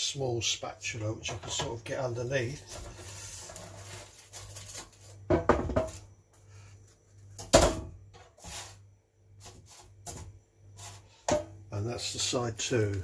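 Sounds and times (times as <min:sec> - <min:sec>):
spatula scraping basket: 0:02.6 - 0:05.2, 0:08.3 - 0:08.8, 0:10.7 - 0:11.1.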